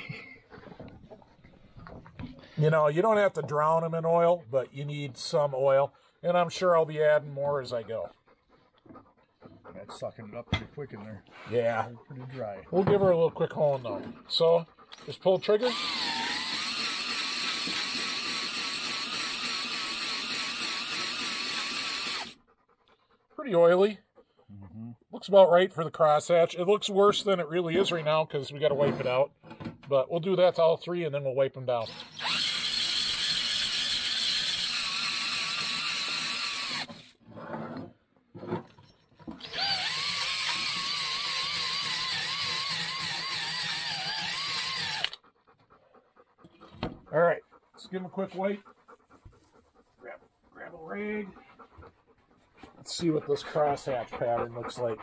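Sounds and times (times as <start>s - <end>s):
abrasive balls scrubbing metal: 8.8s - 19.2s, 52.4s - 55.0s
cordless drill motor whine: 15.7s - 22.4s, 31.9s - 37.0s, 39.4s - 45.2s.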